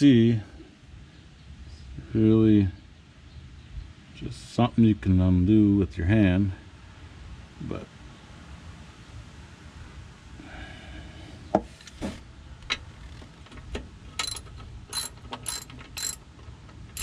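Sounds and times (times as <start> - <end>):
socket wrench clicking: 14.2 - 16.2.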